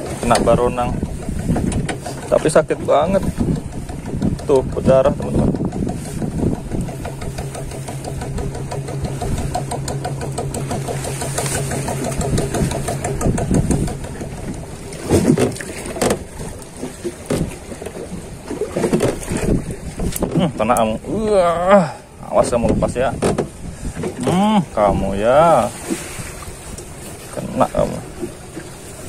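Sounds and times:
motor engine running: 0.0 - 17.7.

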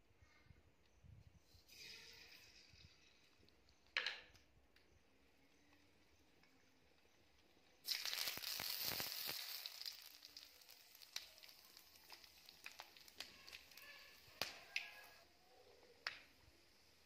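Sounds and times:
oil popping and crackling: 6.4 - 17.0
leaves and spices sizzling in oil: 7.8 - 15.3, 16.2 - 17.0.

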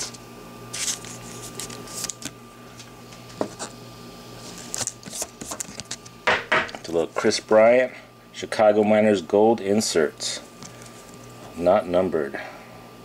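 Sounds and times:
faint steady whine: 0.0 - 13.0
trading cards rustling and tapping: 4.6 - 6.8.

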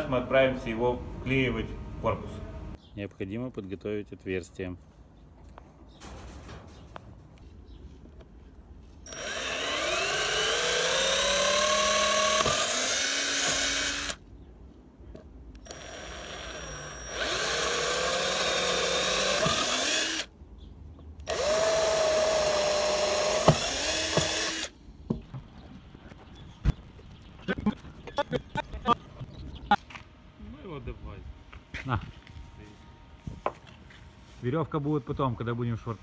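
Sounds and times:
electric drill whining: 9.0 - 14.2, 15.6 - 20.3, 21.3 - 24.7.

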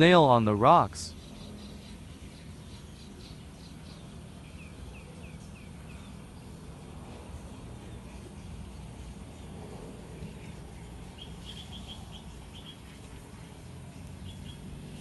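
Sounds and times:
outdoor background hum: 0.0 - 15.0
bird chirps: 1.0 - 6.6, 10.2 - 13.2, 14.1 - 14.7.

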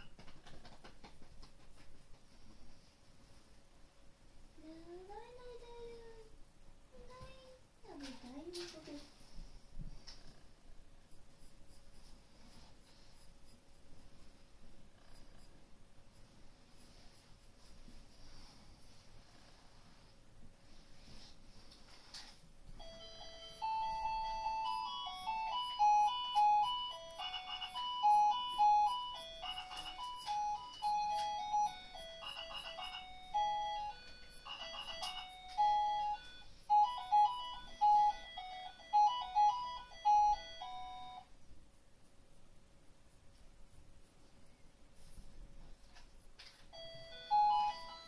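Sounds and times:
electronic beeping tune: 22.8 - 41.2.

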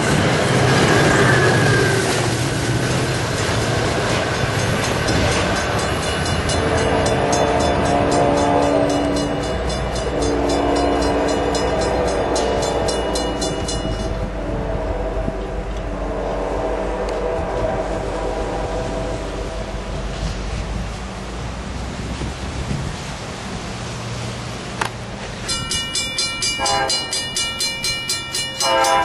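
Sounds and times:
passing train rumble: 0.0 - 29.0
locomotive air horn blasts: 6.2 - 20.4, 26.6 - 27.2, 28.6 - 29.0.

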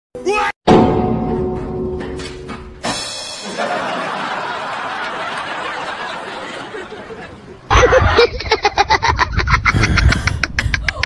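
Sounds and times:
rapid choppy laughter: 3.6 - 11.0.

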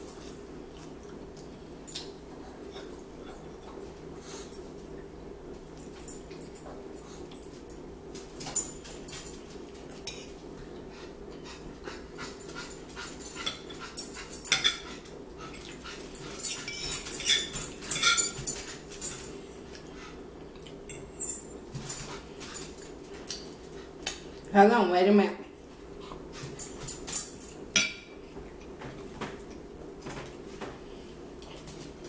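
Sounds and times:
forks clinking on plates: 13.3 - 15.0, 15.6 - 19.4
chewing and lip-smacking: 19.7 - 20.9.

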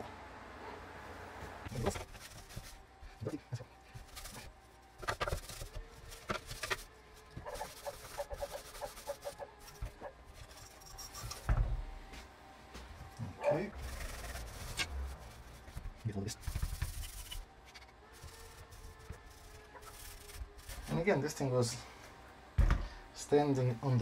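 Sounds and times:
wet wipe squeaking on plastic: 5.2 - 10.1
heavy thump: 22.6 - 23.0.

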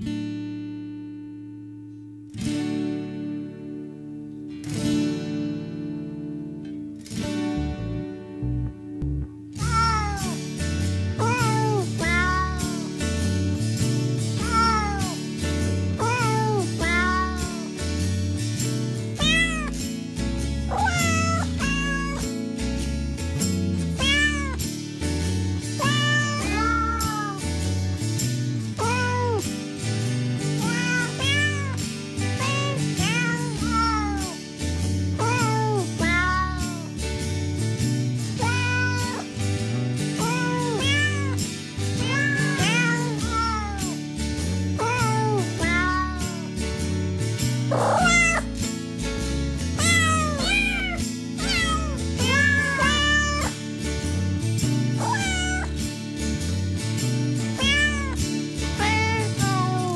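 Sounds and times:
background music with low notes: 2.9 - 59.9
cat meowing: 9.6 - 10.4, 11.2 - 12.9, 14.4 - 15.2, 16.0 - 17.7, 19.2 - 19.8, 20.7 - 22.3, 24.0 - 24.6, 25.8 - 27.5, 28.8 - 29.5, 30.6 - 31.8, 32.4 - 34.4, 35.2 - 36.9, 38.4 - 39.3, 40.2 - 41.4, 42.0 - 44.0, 44.8 - 46.5, 47.7 - 48.5, 49.8 - 53.6, 55.0 - 55.7, 57.6 - 58.2, 58.8 - 59.9.

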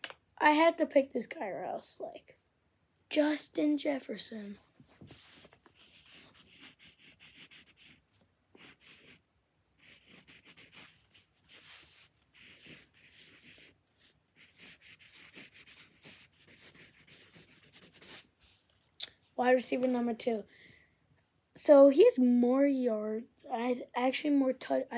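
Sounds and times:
pencil scratching on paper: 5.0 - 9.2, 9.8 - 18.7.

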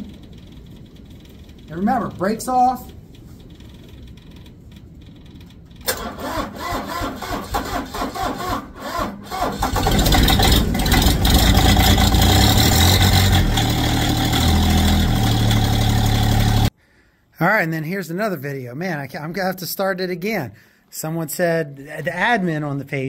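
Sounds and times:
starter cranking engine: 3.5 - 16.7
diesel engine running: 9.4 - 16.7.

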